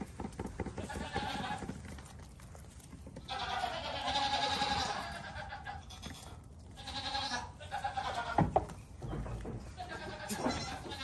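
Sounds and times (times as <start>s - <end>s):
baby goats bleating: 0.8s - 1.9s, 3.2s - 8.6s, 9.7s - 11.0s.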